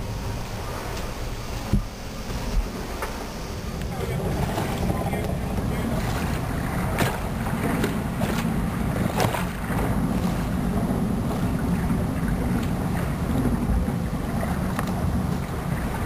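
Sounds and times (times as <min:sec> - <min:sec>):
water rushing past hull: 0:00.0 - 0:16.0
wind buffeting microphone: 0:00.0 - 0:16.0
sharp water splashes: 0:03.8 - 0:16.0.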